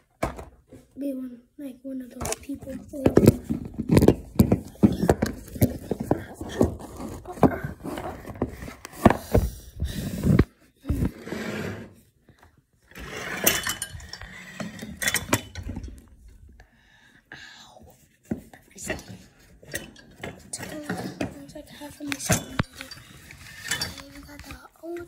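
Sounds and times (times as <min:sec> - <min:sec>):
cardboard and plastic box crinkling: 0:02.3 - 0:09.1.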